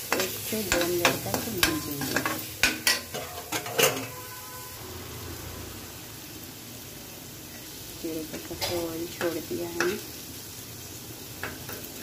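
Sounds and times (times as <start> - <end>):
masala sizzling in oil: 0.0 - 12.0
metal spatula scraping pan: 0.1 - 4.8.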